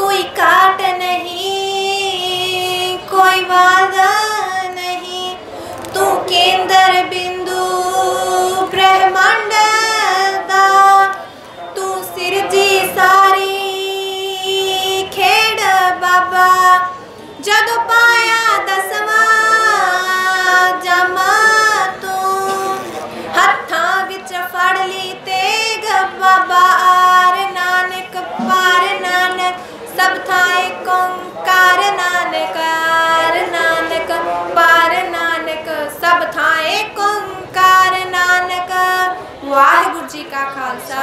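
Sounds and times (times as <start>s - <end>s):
singer breathing: 5.4s - 5.9s, 17.0s - 17.3s, 29.6s - 29.9s.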